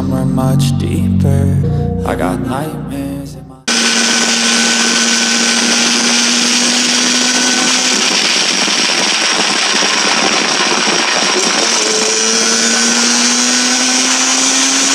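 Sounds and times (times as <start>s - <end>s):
motorcycle engine buzzy drone: 3.7s - 14.9s.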